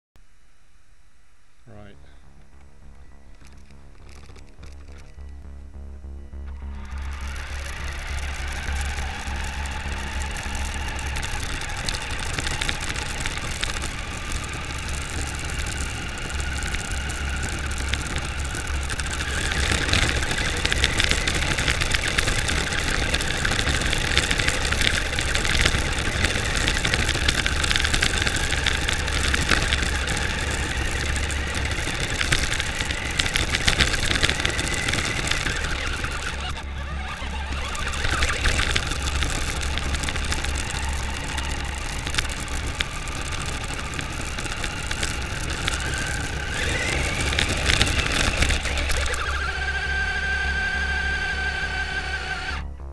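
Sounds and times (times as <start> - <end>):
electric motor and gears whine: 0.2 - 52.9
tyres rumbling on road: 2.3 - 52.7.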